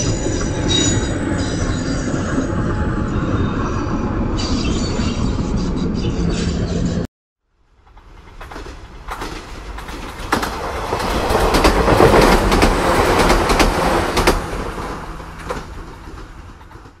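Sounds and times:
train wheels rumbling: 0:00.0 - 0:07.0, 0:07.6 - 0:17.0
wheels clicking over rail joints: 0:07.7 - 0:17.0.

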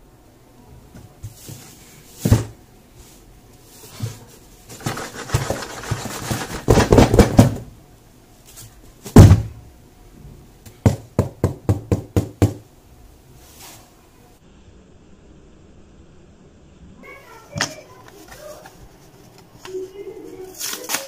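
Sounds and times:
loud thump on box: 0:06.5 - 0:07.7, 0:09.1 - 0:09.6.

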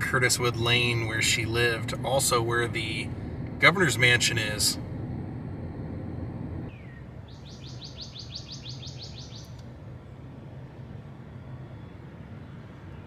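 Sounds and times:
low background rumble: 0:00.0 - 0:13.0
songbird singing: 0:06.7 - 0:09.7.

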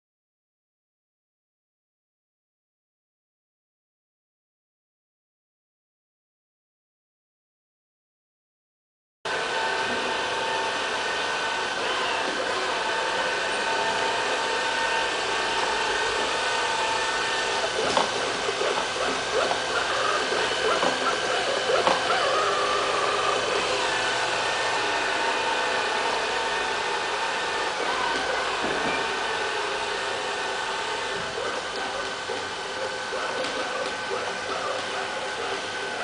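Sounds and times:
robot vacuum motor whine: 0:09.3 - 0:36.0.

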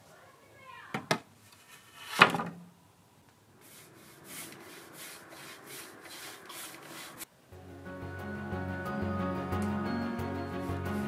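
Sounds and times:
paintbrush stroking wooden boards: 0:03.6 - 0:07.3, 0:10.6 - 0:11.0.

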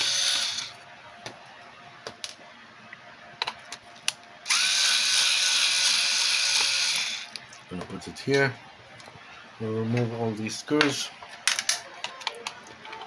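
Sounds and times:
electric screwdriver whine: 0:00.0 - 0:00.8, 0:04.5 - 0:07.4.

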